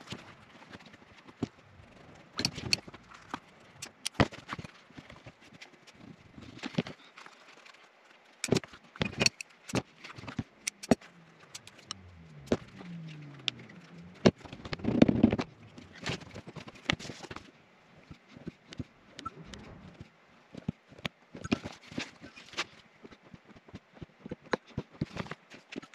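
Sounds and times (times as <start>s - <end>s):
tools clicking and knocking: 2.4s - 4.6s, 8.4s - 12.0s.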